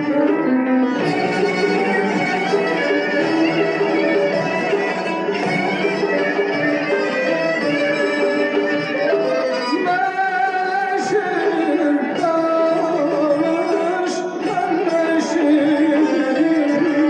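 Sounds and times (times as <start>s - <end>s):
instrumental accompaniment: 0.0s - 17.0s
man singing long ornamented notes: 9.0s - 17.0s.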